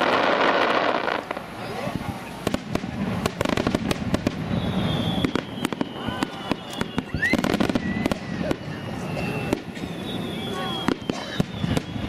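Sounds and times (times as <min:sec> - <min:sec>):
firework crackle: 0:00.0 - 0:12.0
faint high whistle: 0:04.4 - 0:12.0.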